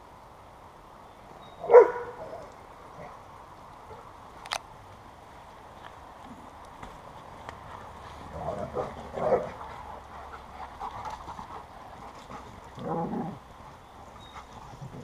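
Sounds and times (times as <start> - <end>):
dogs barking and whining: 8.4 - 10.5.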